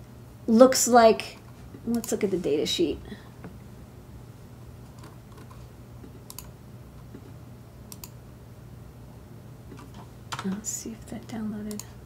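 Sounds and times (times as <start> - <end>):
low steady hum: 0.0 - 12.0
keyboard and mouse clicks: 4.9 - 5.6, 6.3 - 6.5, 7.9 - 8.2, 11.7 - 11.9.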